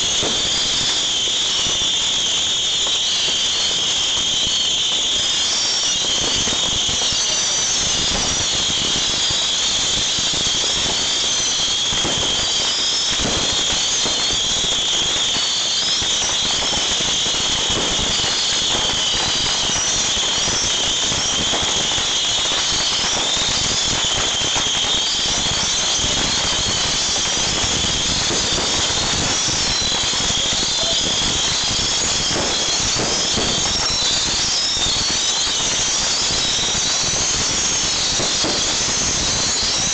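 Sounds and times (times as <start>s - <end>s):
bottle rockets whistling: 0.0s - 39.9s.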